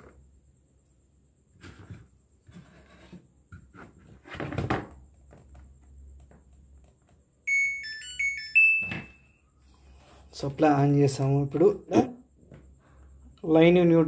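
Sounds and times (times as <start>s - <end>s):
electronic beeping tune: 7.5s - 9.4s.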